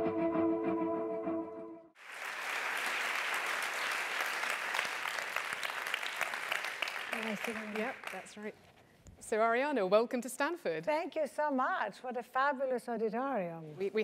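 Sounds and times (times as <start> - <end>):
intro music: 0.0 - 1.9
large audience applauding: 2.0 - 8.4.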